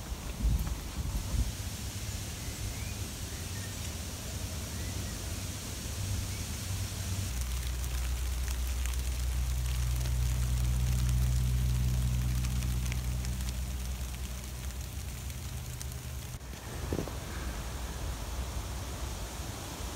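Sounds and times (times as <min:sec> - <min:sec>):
outdoor background hiss: 0:00.0 - 0:19.9
steady low hum: 0:00.0 - 0:19.9.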